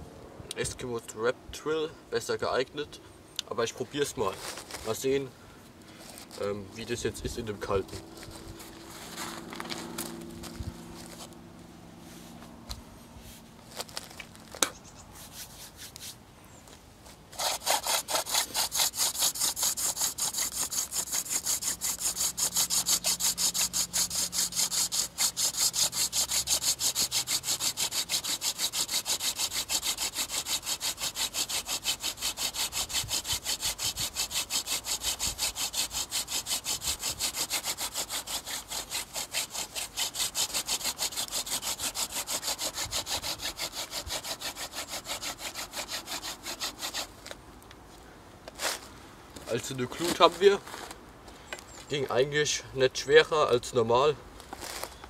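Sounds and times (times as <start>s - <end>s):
wooden spindle grinding in hearth board: 6.0s - 11.4s, 17.3s - 47.4s.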